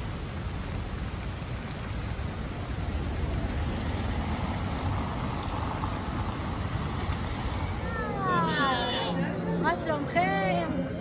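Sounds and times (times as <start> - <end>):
car tyres hissing on wet road: 0.0 - 8.1
rain: 0.0 - 9.1
low traffic rumble: 0.0 - 9.9.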